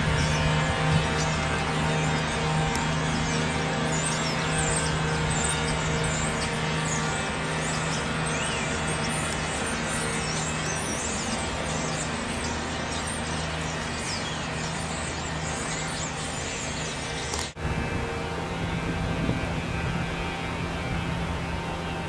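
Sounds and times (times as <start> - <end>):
small birds chirping: 0.0 - 17.6
city traffic hum: 0.0 - 22.0.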